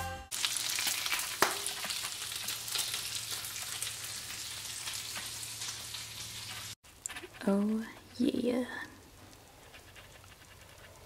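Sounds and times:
bacon sizzling in a frying pan: 0.3 - 6.8.

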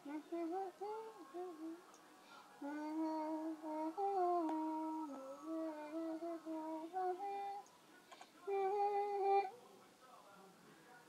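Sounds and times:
person humming: 0.0 - 1.8, 2.6 - 7.6, 8.5 - 9.5.

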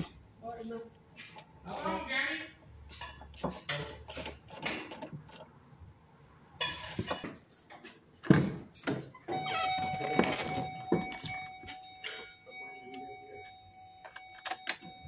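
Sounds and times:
ratchet clicking: 1.2 - 1.8
electronic warning tone: 9.3 - 15.0.

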